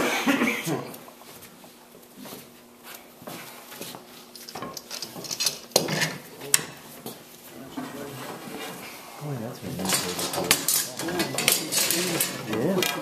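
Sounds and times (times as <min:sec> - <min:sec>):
metal clamps clicking and clinking: 0:04.4 - 0:06.2, 0:09.8 - 0:13.0.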